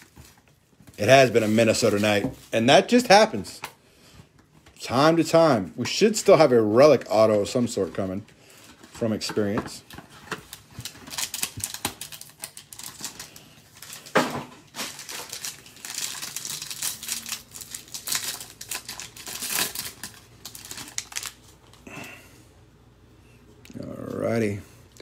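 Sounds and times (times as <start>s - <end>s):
card pack wrapping crinkling: 0.0s - 3.2s, 5.8s - 21.9s.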